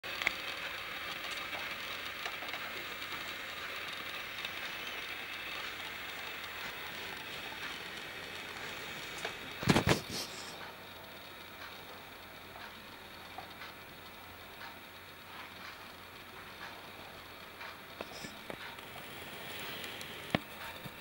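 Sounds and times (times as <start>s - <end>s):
steady hiss: 0.1s - 21.0s.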